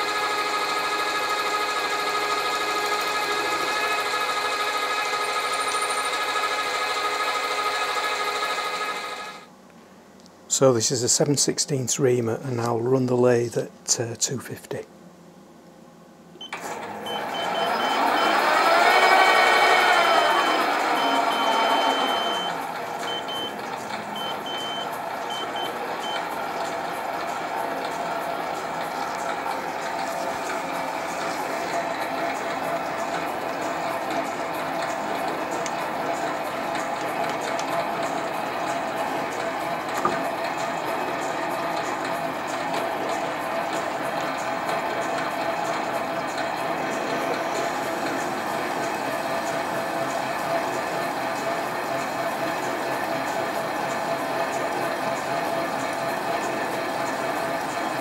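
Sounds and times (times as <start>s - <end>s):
lathe motor whine: 0.0s - 9.5s, 16.6s - 58.0s
drill boring into brass: 17.4s - 22.6s.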